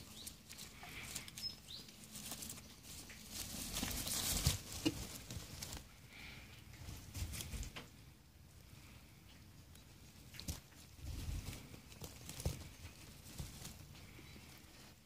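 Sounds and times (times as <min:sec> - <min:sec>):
straw bedding rustling: 0:00.0 - 0:08.0, 0:09.9 - 0:15.0.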